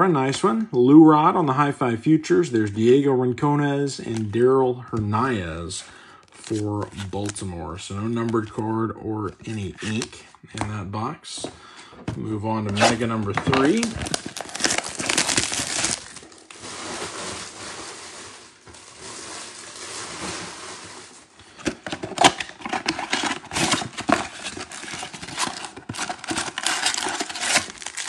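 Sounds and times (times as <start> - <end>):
plastic shrink wrap crinkling: 12.7 - 28.0.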